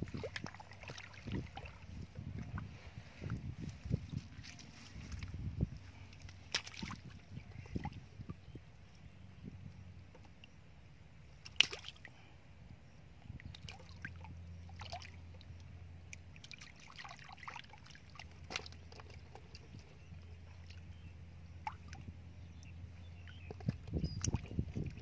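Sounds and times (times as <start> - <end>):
small water splashes: 0.0 - 2.6, 6.1 - 8.4, 11.4 - 12.2, 13.3 - 21.0, 21.6 - 22.6, 23.2 - 25.0
hands sloshing in muddy water: 0.0 - 8.1, 11.4 - 12.2, 13.4 - 15.5, 16.3 - 21.0
faint low hum: 0.0 - 25.0.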